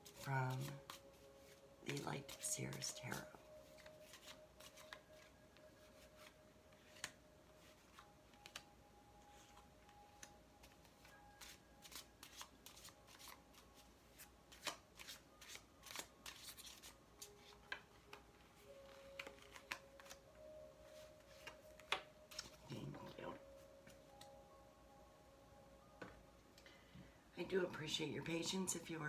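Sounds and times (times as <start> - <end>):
cards being shuffled: 0.0 - 8.7, 9.3 - 20.2, 20.9 - 22.6.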